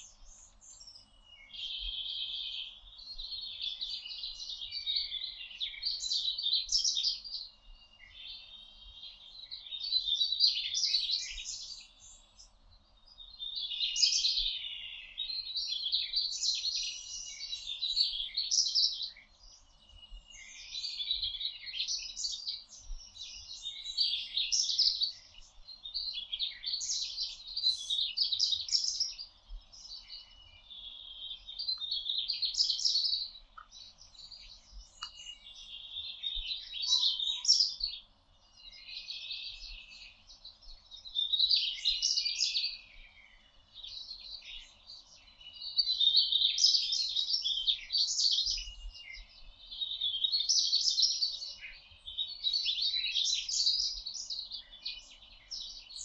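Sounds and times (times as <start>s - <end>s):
songbirds singing: 0.0s - 56.0s.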